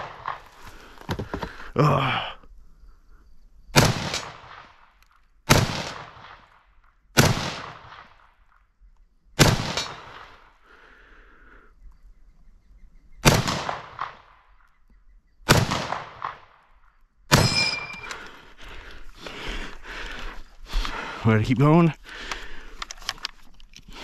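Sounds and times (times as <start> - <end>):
rifle shots: 3.8 - 6.5, 7.2 - 8.2, 9.4 - 10.5, 13.2 - 14.4, 15.5 - 16.6, 17.3 - 18.2.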